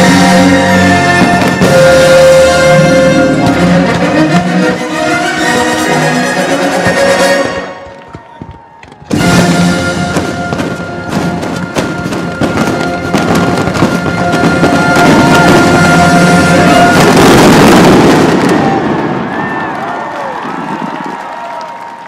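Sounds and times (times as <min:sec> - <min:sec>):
fireworks crackle: 0:00.0 - 0:04.1, 0:07.8 - 0:21.7
fireworks bursting: 0:00.0 - 0:04.4, 0:06.8 - 0:21.1
show music with held notes: 0:00.0 - 0:08.1, 0:09.1 - 0:17.6.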